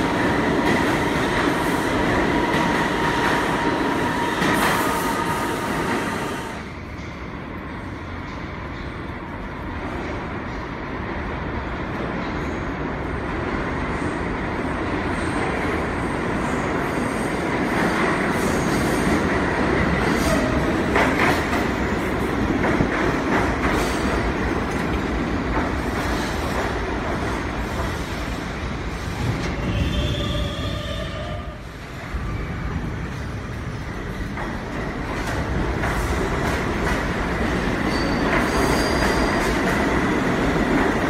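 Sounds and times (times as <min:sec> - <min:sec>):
subway train rumble: 0:00.0 - 0:41.0
train brake squeal: 0:29.6 - 0:31.5, 0:37.9 - 0:39.6.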